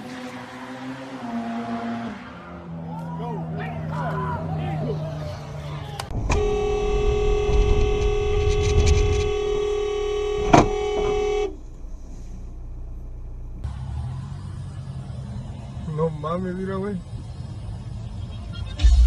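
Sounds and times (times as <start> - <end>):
engine and road rumble: 0.0 - 19.0
car horn honking: 6.1 - 11.6.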